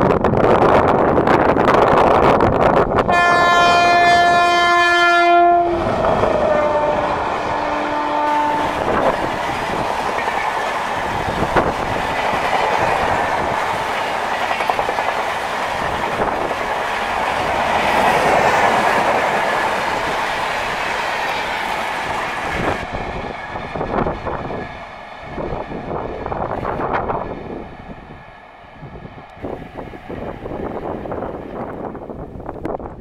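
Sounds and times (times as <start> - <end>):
train rumble and wheel clatter: 0.0 - 33.0
two-tone locomotive horn: 3.1 - 9.3.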